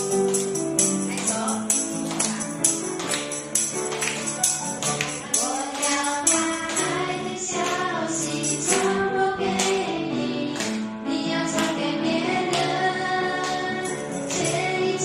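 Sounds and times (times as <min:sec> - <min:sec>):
tambourine jingling: 0:00.0 - 0:09.1, 0:13.1 - 0:15.0
piano accompaniment: 0:00.0 - 0:15.0
children singing a hymn: 0:05.3 - 0:15.0.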